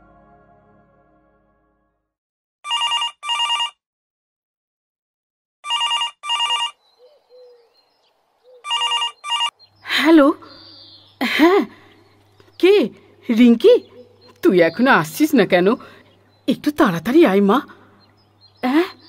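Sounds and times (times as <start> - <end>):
background music: 0.0 - 2.1
telephone ringing: 2.6 - 3.8, 5.6 - 6.8, 8.7 - 9.5.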